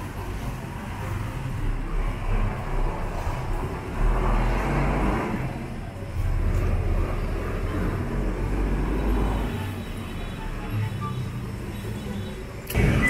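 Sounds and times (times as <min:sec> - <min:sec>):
bus engine pulling away: 0:00.0 - 0:09.8
road traffic: 0:00.0 - 0:13.0.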